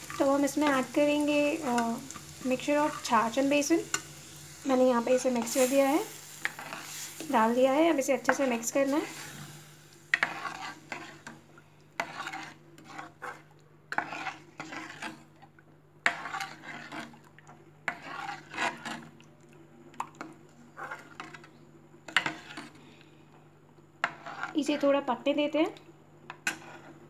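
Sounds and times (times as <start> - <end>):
metal spoon scraping a pan: 0.0 - 11.4, 12.0 - 15.3, 16.0 - 17.2, 17.8 - 19.1, 20.8 - 22.8, 24.0 - 25.0, 26.3 - 27.0.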